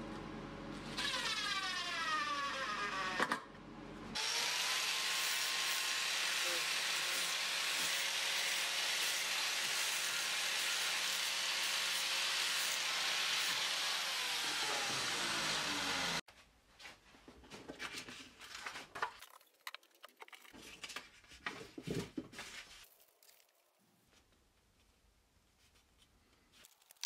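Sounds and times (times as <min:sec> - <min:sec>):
angle grinder on metal: 0:04.2 - 0:16.2.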